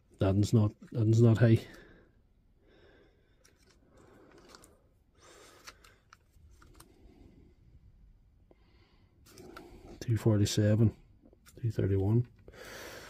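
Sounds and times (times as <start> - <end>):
test probes clicking and scraping: 3.3 - 7.2, 9.2 - 10.1.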